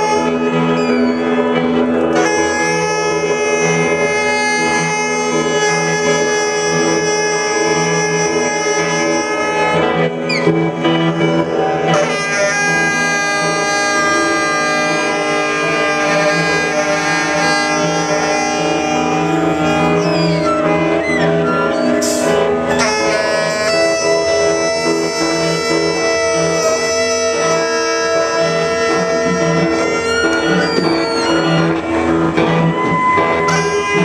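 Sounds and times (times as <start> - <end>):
saxophone and guitar drone: 0.0 - 34.0.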